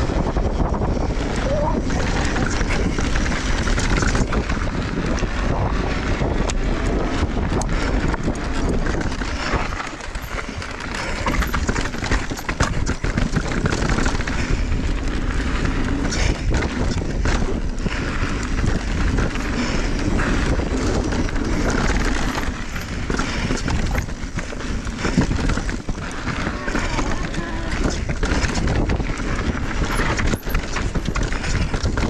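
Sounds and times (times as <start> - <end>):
bike rattling over bumps: 0.0 - 32.0
tyres crunching on dirt: 8.3 - 32.0.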